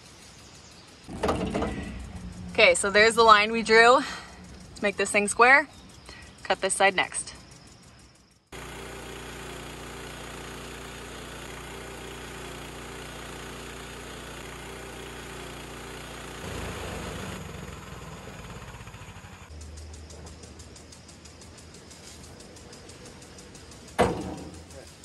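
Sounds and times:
sawmill gas engine running: 1.0s - 5.4s, 8.5s - 25.0s
band saw cutting log: 8.6s - 19.5s.

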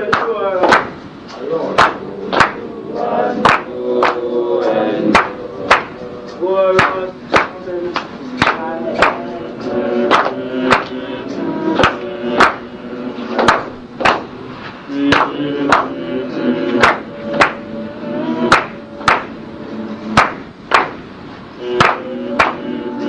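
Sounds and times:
held pitched notes: 1.5s - 23.0s
sharp percussive strikes: 6.8s - 9.3s, 16.8s - 17.7s, 18.4s - 19.5s, 20.1s - 23.0s.

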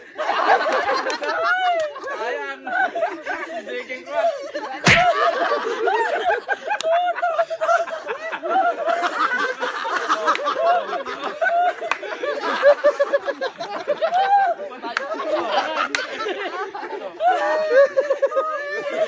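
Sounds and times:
men laughing and chattering: 0.0s - 19.0s
sharp knock: 4.9s - 5.2s.

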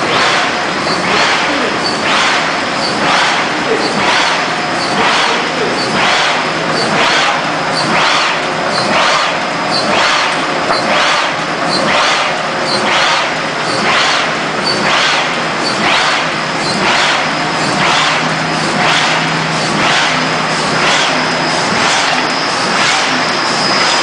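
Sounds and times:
stamping machine cycling: 0.0s - 24.0s.

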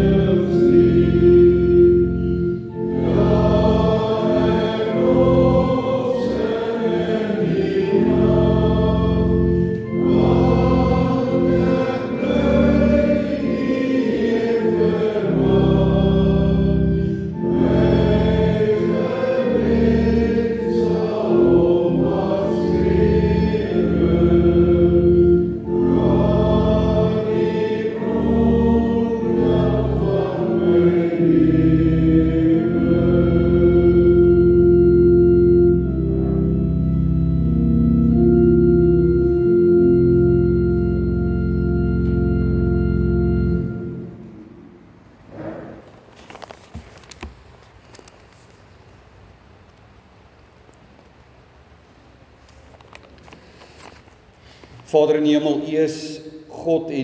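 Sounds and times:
congregation singing a hymn: 0.0s - 44.6s
instrumental accompaniment low tones: 0.0s - 45.8s
singers breathing: 16.9s - 17.4s, 53.4s - 54.8s.

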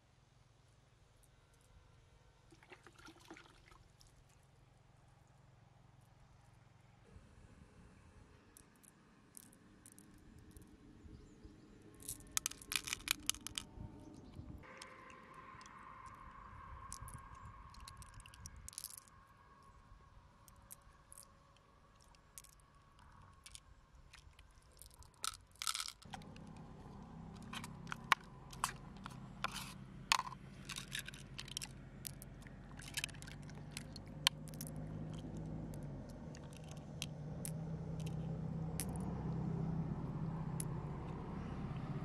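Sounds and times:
low motor hum: 7.0s - 42.0s
pearls clicking together: 8.6s - 10.7s, 11.9s - 13.7s, 16.9s - 19.1s, 21.9s - 26.6s, 27.4s - 39.0s.

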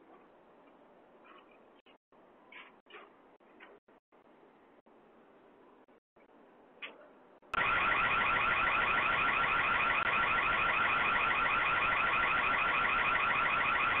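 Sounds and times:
warbling electronic siren: 7.6s - 14.0s.

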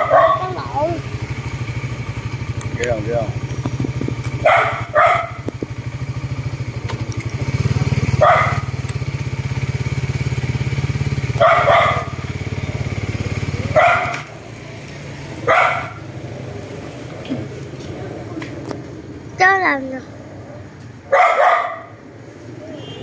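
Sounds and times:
dogs barking: 0.0s - 0.8s, 4.3s - 5.5s, 8.0s - 8.9s, 11.2s - 14.6s, 15.3s - 16.2s, 20.5s - 22.0s
small engine idling: 0.0s - 20.4s.

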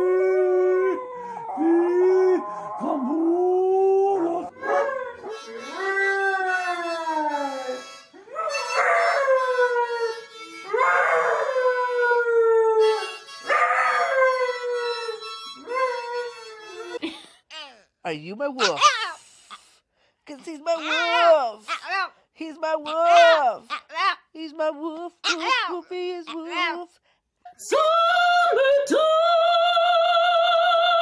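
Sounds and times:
dogs howling: 0.0s - 15.2s.

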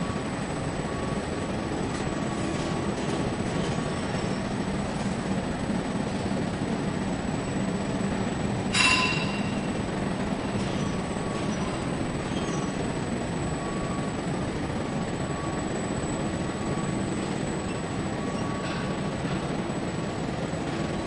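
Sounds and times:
arc welding hum: 0.0s - 21.0s
high metallic squeal: 8.7s - 9.7s.

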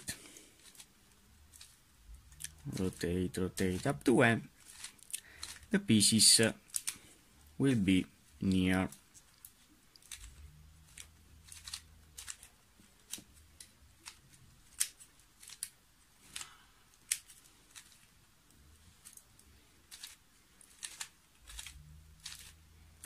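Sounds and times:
plastic puzzle cube clicking: 1.5s - 5.7s, 6.6s - 7.0s, 8.9s - 18.1s, 19.0s - 23.0s.

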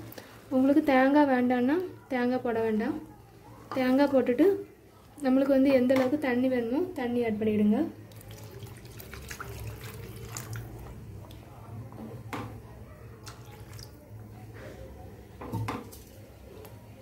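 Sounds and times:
water poured into pan: 8.1s - 10.9s.

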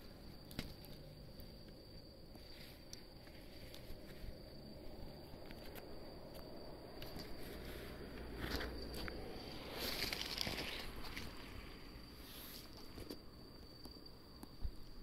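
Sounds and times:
rustle: 0.0s - 14.6s
night insects trilling: 0.0s - 15.0s.

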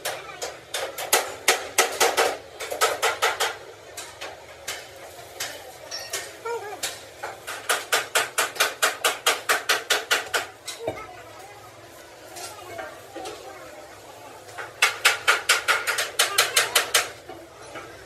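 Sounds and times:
hammer striking steel: 0.0s - 10.5s, 14.6s - 17.4s.

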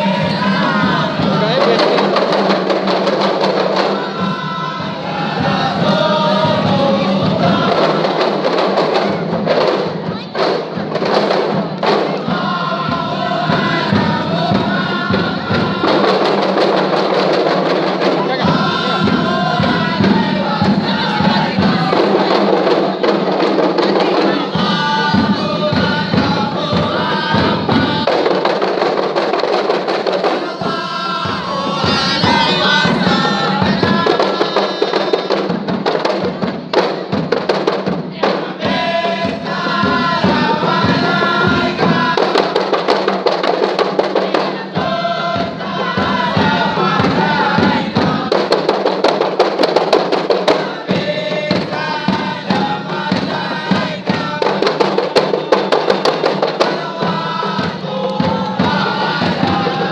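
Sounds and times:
group singing in chorus: 0.0s - 59.9s
hand-held frame drums beating: 0.0s - 59.9s.

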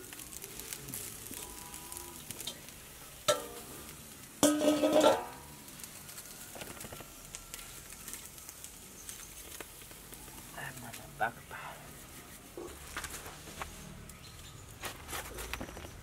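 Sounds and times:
steel bowl clanking on wok: 3.3s - 3.6s, 4.4s - 5.4s.

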